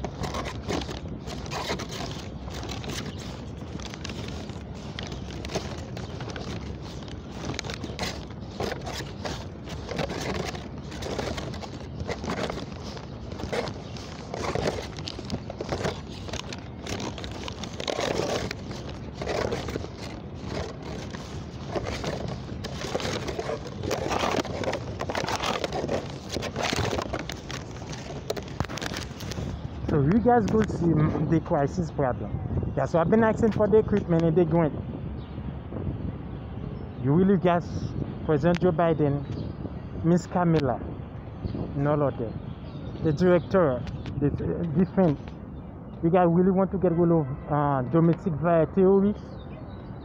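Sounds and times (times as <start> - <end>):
microphone rubbing against clothing: 0.0 - 31.4.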